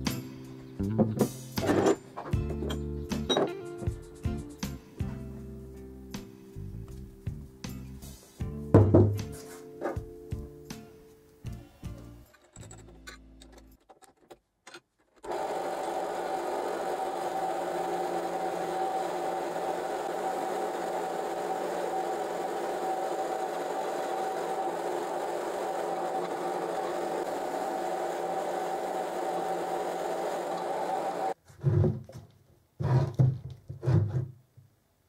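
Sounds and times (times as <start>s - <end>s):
drill press running: 15.2s - 31.4s.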